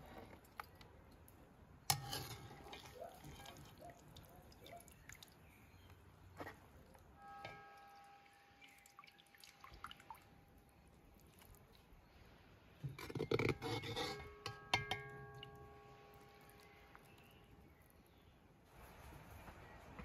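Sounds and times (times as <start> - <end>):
spoon clattering and scraping food: 1.9 - 3.8, 12.8 - 17.0
metal spoon tapping ringing pot: 13.4 - 16.7.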